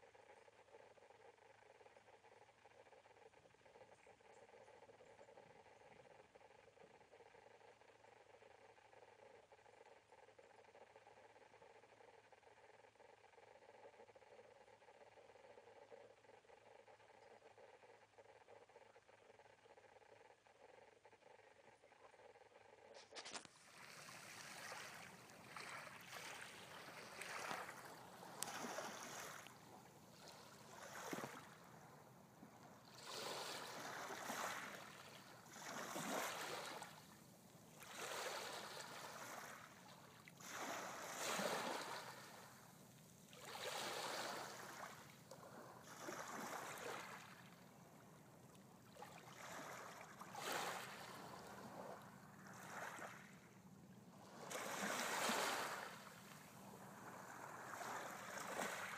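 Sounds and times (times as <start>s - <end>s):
small waves lapping on pebbles: 23.2s - 29.6s, 32.9s - 37.0s, 37.8s - 42.4s, 43.4s - 45.0s, 49.0s - 51.7s, 54.4s - 58.9s.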